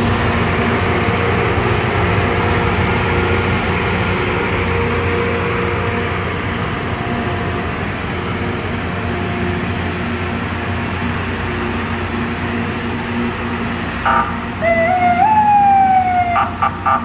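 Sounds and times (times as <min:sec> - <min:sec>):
diesel engines running: 0:00.0 - 0:17.0
loud horn tone: 0:14.1 - 0:17.0.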